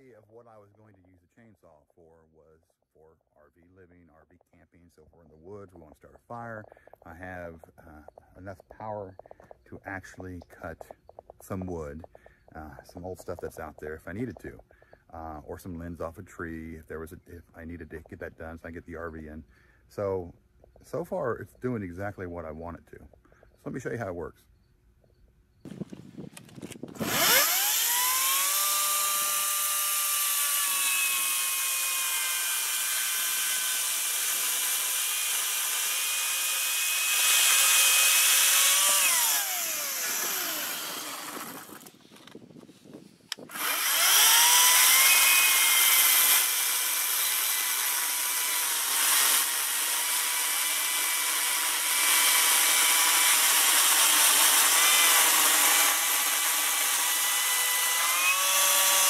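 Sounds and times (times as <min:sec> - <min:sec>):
battery chainsaw cutting log: 0:25.7 - 0:42.5, 0:43.3 - 0:59.0.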